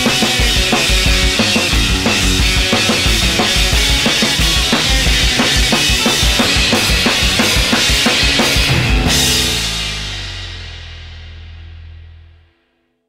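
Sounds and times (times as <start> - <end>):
drum beat: 0.0 - 10.2
band playing: 0.0 - 10.6.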